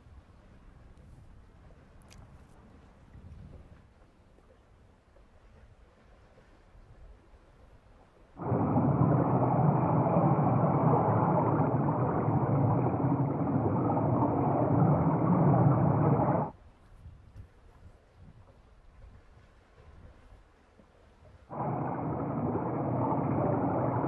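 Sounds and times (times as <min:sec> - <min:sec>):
underwater rumble of trawl dragging: 0:08.4 - 0:16.5, 0:21.5 - 0:24.0.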